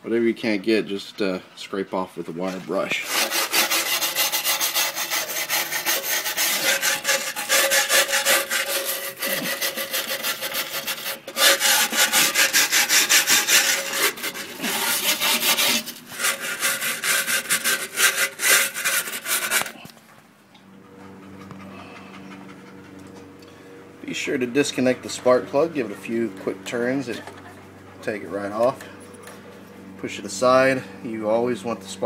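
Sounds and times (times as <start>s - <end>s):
wire brush scrubbing metal: 2.4s - 19.9s.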